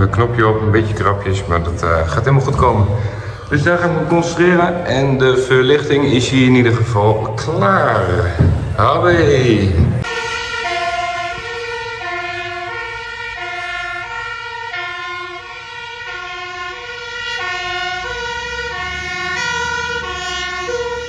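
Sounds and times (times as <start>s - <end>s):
low rumble: 1.7s - 10.1s
two-tone siren: 10.0s - 21.0s.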